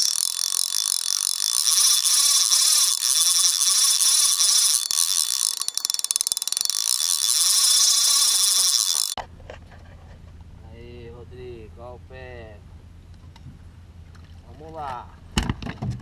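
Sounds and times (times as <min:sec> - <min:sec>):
high-pitched mechanical clicking: 0:00.0 - 0:09.2.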